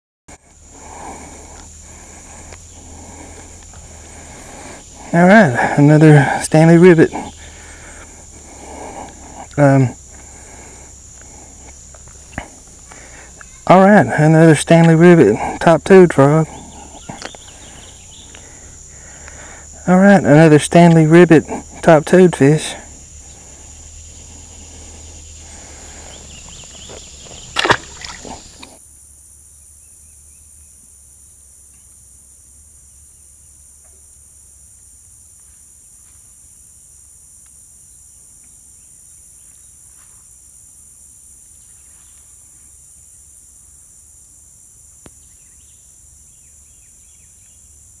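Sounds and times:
insect chorus drone: 0.3 - 48.0
loud splash: 27.5 - 28.4.

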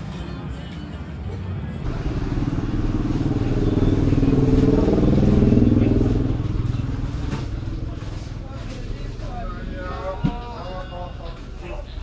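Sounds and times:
motorcycle driving past: 1.8 - 9.8.

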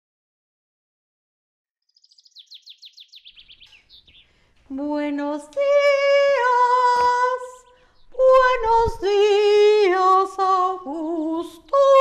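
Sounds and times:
woman singing operatic notes: 4.7 - 12.0.

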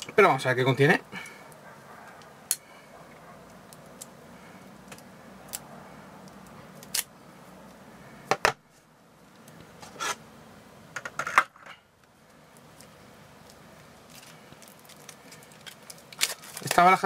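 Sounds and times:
plastic wrapping crinkling: 12.5 - 17.0.

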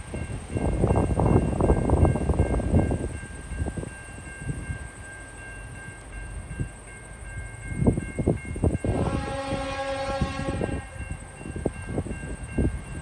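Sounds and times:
train rumbling: 0.0 - 13.0
locomotive air horn: 8.8 - 11.2.

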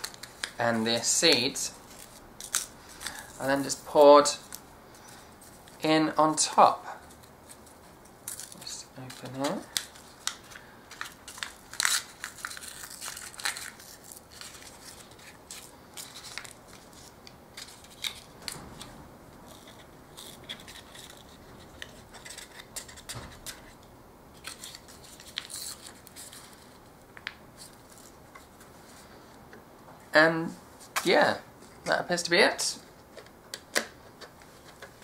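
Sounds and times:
foil sachet tearing and crinkling: 1.8 - 4.6, 8.2 - 18.3.

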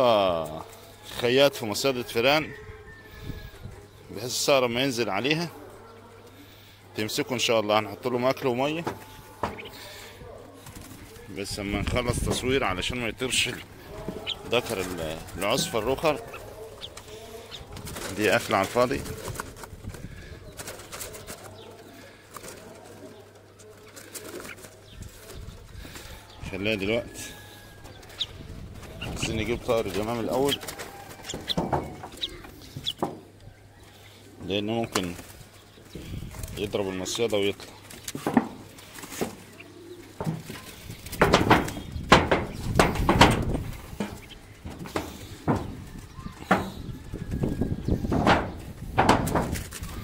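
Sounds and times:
doves cooing: 0.0 - 50.0
footsteps on corrugated metal roof: 8.3 - 33.5, 34.4 - 50.0
wire cage clicking: 40.3 - 46.8.

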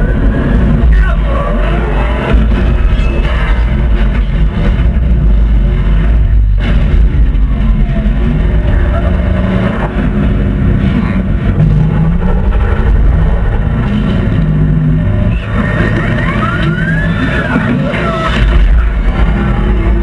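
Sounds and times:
heavy engine rumble: 0.0 - 20.0
high sliding squeals: 15.3 - 18.5.

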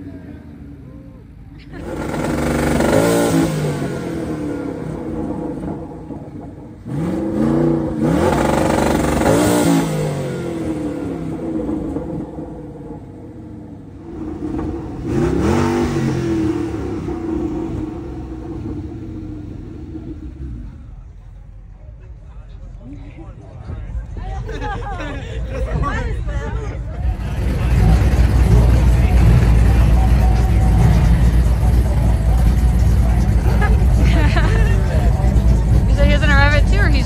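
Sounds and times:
descending engine whine: 0.0 - 22.5
car engine idling: 0.0 - 37.0
car engine revving hard: 1.8 - 21.0, 27.1 - 37.0.

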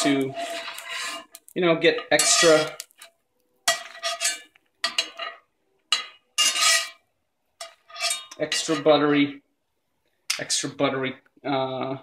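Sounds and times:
metal spatula scraping skillet: 0.0 - 9.2.

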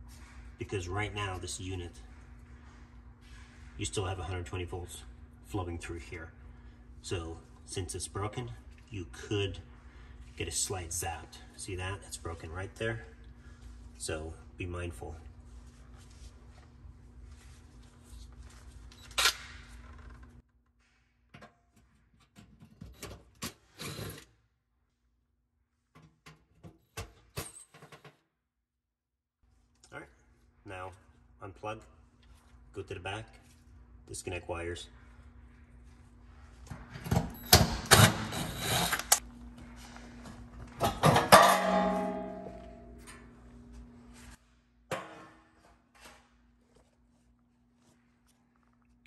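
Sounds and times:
sheet metal clattering and scraping: 40.8 - 42.7
loud metallic clank: 40.9 - 43.0.

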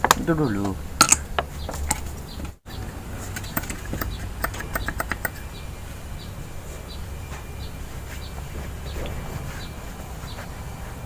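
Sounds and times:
low steady hum: 0.0 - 11.0
metallic clicks and taps: 3.4 - 5.4.

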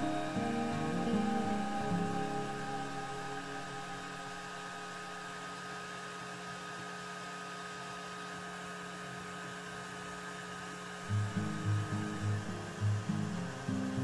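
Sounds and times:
thin high tone: 0.0 - 5.8
laser engraver humming: 0.0 - 8.3, 9.8 - 14.0.

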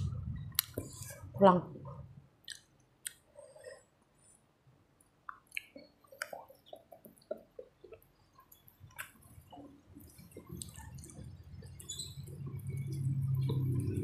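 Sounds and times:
chewing with wet mouth clicks: 2.4 - 3.3, 5.0 - 13.6.

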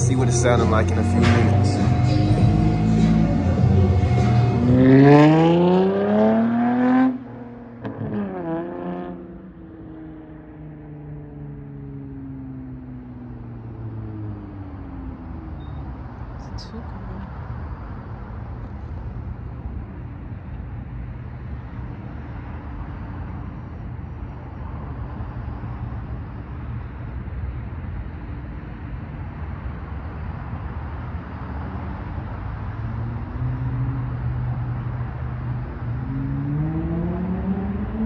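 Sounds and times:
car exhaust rumbling: 0.0 - 8.5
engine revving up: 0.0 - 9.4, 36.0 - 38.0.

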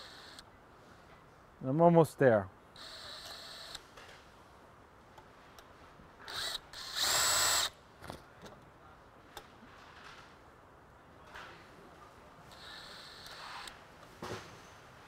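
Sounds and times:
cordless drill bursts: 0.0 - 0.4, 2.8 - 3.8, 6.2 - 7.7, 12.5 - 13.8.

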